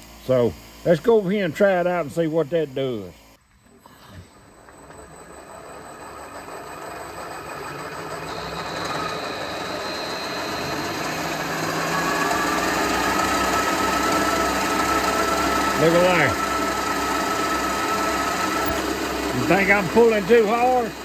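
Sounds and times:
drill bit whine in metal: 0.0s - 21.0s
milling machine spindle running: 4.3s - 21.0s.

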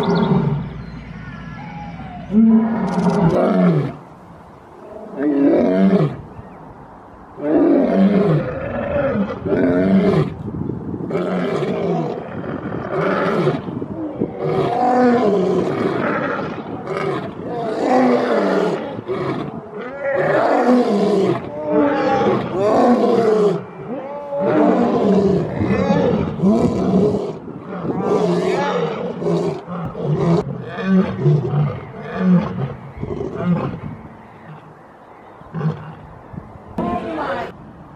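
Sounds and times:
lions roaring: 1.6s - 4.0s, 11.1s - 34.7s.

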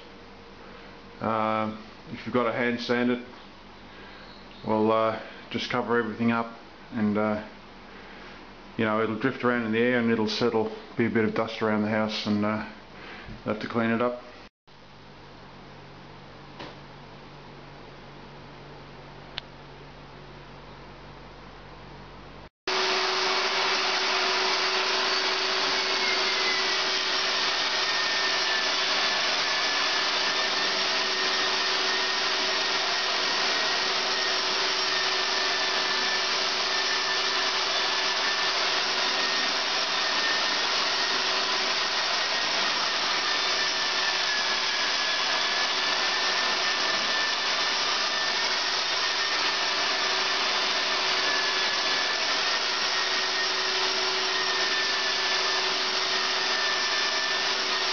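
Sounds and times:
electric sander whirring: 22.7s - 57.9s
vacuum drawing through hose: 22.7s - 57.9s.

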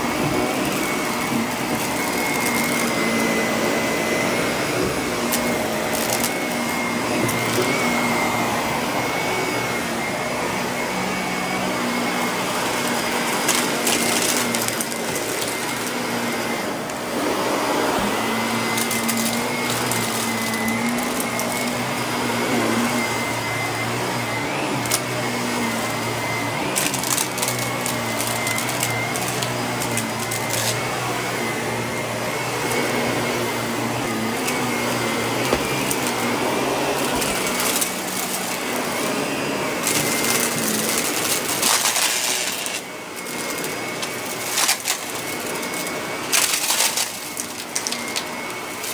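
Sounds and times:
upright vacuum cleaner running: 0.0s - 48.9s.

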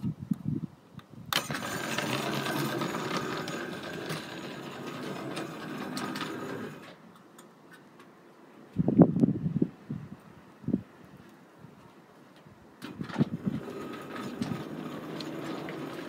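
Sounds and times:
model train motor whirring: 1.3s - 7.0s, 13.1s - 16.0s
wheels rattling over track: 1.3s - 7.1s, 12.8s - 16.0s.

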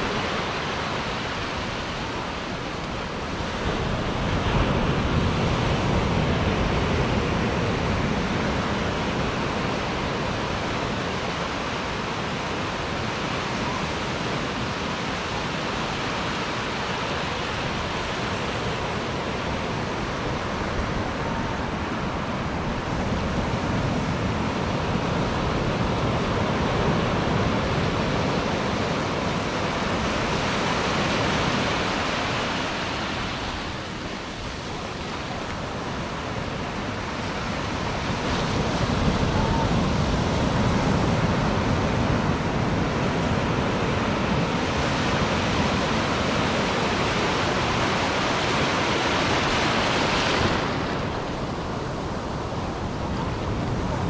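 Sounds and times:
ocean surf breaking on shore: 0.0s - 54.0s.

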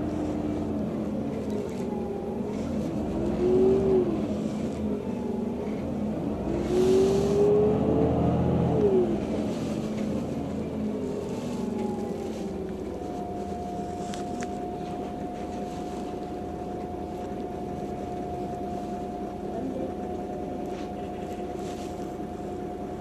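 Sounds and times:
bus engine droning: 0.0s - 23.0s
whine sliding down in pitch: 0.2s - 21.0s.

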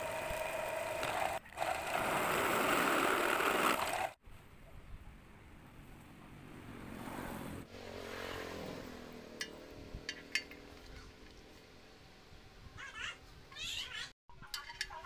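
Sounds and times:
vehicle engine passing: 6.4s - 12.4s
steel parts clicking: 9.4s - 11.1s, 14.4s - 15.0s.

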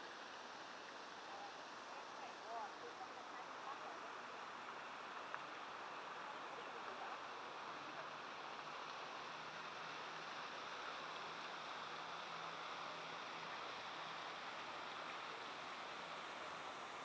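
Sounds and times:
open-air background noise: 0.0s - 17.0s.

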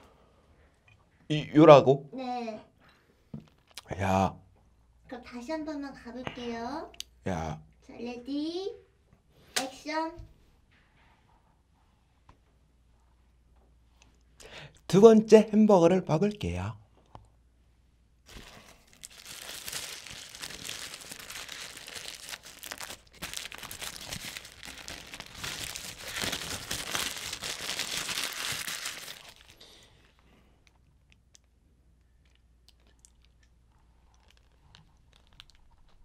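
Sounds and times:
paper wrapper crinkling: 18.3s - 30.2s, 33.9s - 36.0s.

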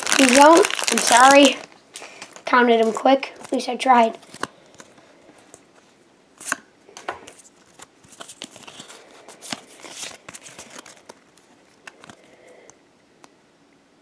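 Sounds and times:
foil wrapper crinkling and tearing: 0.0s - 5.1s, 7.5s - 12.3s
trading cards rustling: 0.0s - 12.3s.

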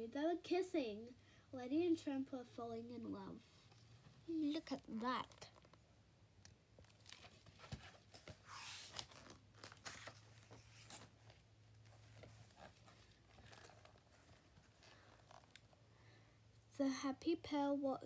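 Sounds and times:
book pages turning: 4.6s - 5.8s, 6.8s - 15.8s.

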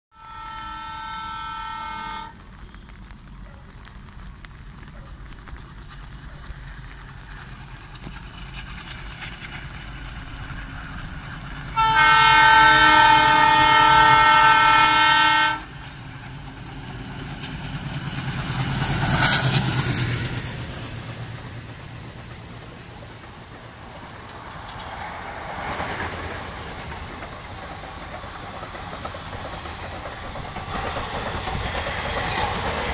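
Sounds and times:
locomotive horn blast: 0.1s - 2.4s, 11.7s - 15.7s
diesel locomotive engine rumble: 0.2s - 32.9s.

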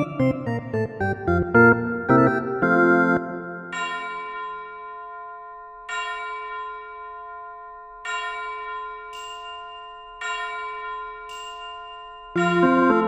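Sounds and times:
bell-like chimes: 3.6s - 13.0s.

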